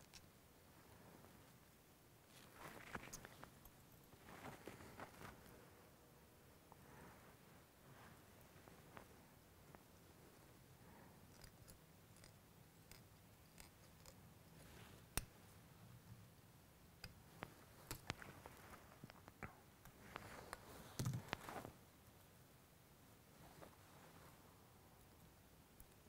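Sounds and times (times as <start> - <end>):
scissors snipping thread: 11.3 - 14.2, 15.1 - 15.3.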